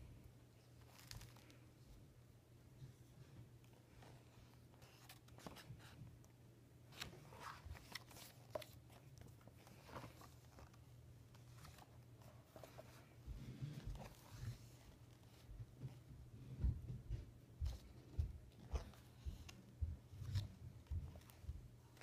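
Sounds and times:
paper book pages turning: 0:00.6 - 0:01.7, 0:03.6 - 0:06.1, 0:06.9 - 0:15.9, 0:17.7 - 0:22.0.

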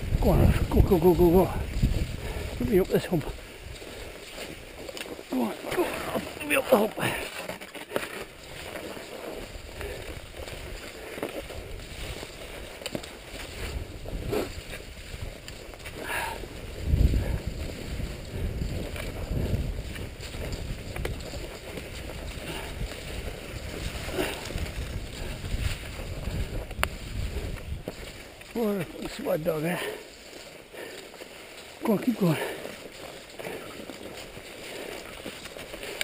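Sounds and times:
wind buffeting microphone: 0:00.0 - 0:07.2, 0:08.4 - 0:30.9
skis swishing over snow: 0:00.0 - 0:36.0.

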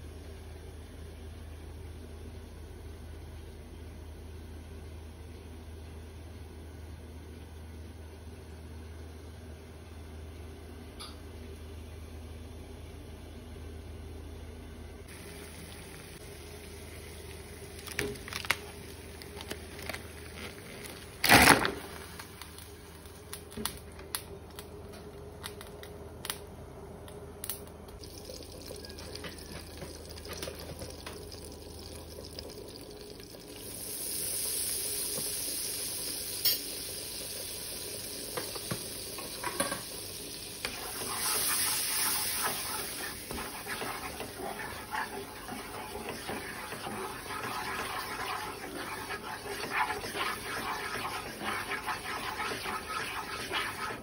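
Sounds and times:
butter sizzling in frying pan: 0:29.2 - 0:54.0.

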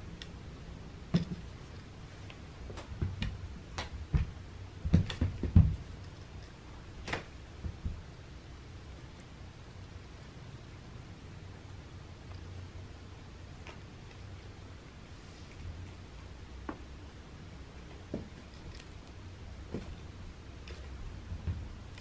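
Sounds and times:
cat thumping and tapping on carpet: 0:01.1 - 0:01.5, 0:02.7 - 0:06.0, 0:19.7 - 0:20.1.

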